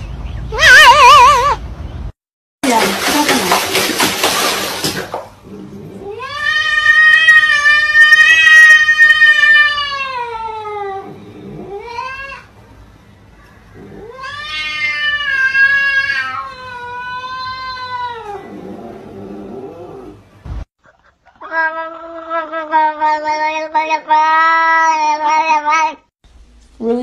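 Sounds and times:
cat yowling: 0:00.5 - 0:01.6, 0:06.0 - 0:12.5, 0:13.8 - 0:18.7, 0:21.4 - 0:26.0.

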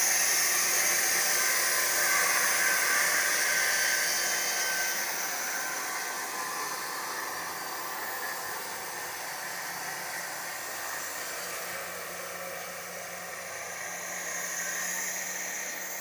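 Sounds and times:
band sawmill whirring hiss: 0:00.0 - 0:16.0.

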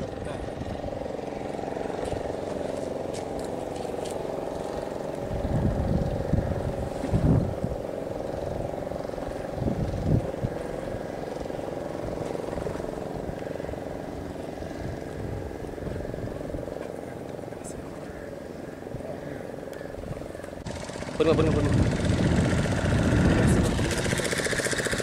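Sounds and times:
engine humming: 0:00.0 - 0:25.0
low rumbling surges: 0:00.0 - 0:25.0.

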